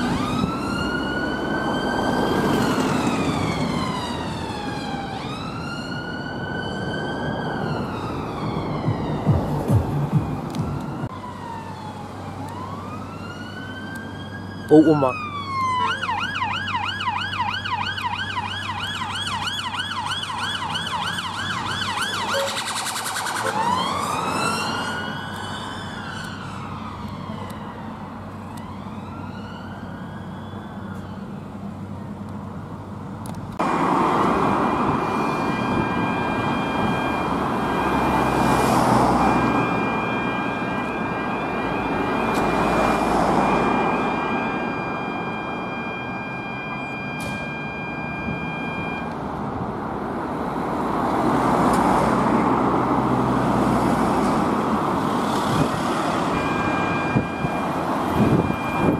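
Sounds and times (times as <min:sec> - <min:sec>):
fire engines in station bay: 0:00.0 - 0:58.9
police car siren: 0:00.0 - 0:58.9
steady high electronic tone: 0:22.1 - 0:25.2, 0:33.8 - 0:49.2, 0:53.8 - 0:58.9.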